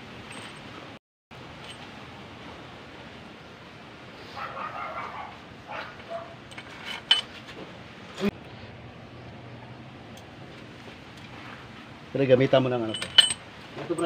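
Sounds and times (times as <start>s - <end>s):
metallic clinks of bolts dropped: 6.4s - 7.4s, 12.8s - 14.0s.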